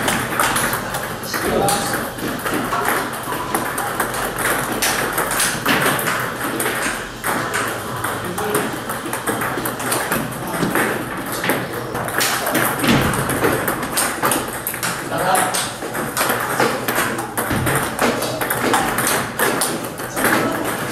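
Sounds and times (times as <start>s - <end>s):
table tennis balls clicking: 0.0s - 20.9s.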